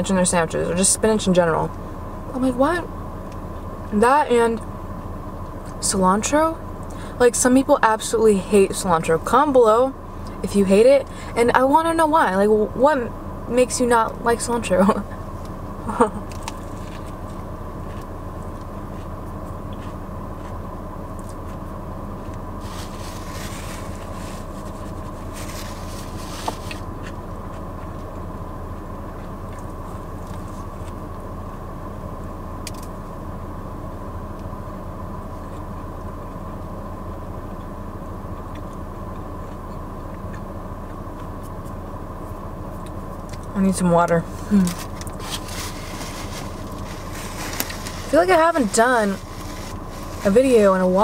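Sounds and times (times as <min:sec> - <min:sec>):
car engine idling: 0:00.0 - 0:51.0
soft rustling: 0:22.6 - 0:28.0, 0:44.2 - 0:51.0.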